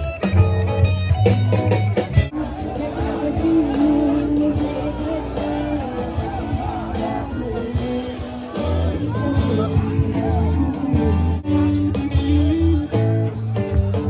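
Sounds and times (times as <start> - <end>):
heavy bass: 0.0 - 14.0
live rock band playing: 0.0 - 14.0
crowd shouting: 1.4 - 11.4
person singing: 2.3 - 12.8.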